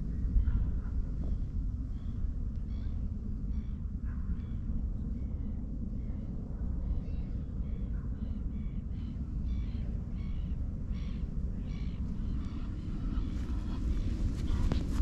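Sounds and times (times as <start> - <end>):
steady low rumble: 0.0 - 15.0
birds calling: 8.6 - 15.0.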